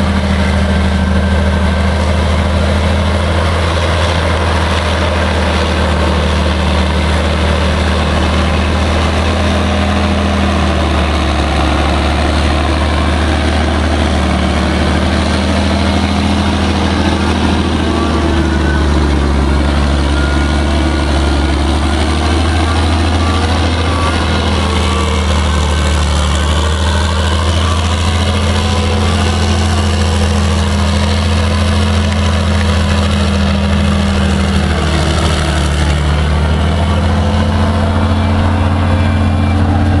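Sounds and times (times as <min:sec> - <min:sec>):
diesel engine running loudly: 0:00.0 - 0:40.0.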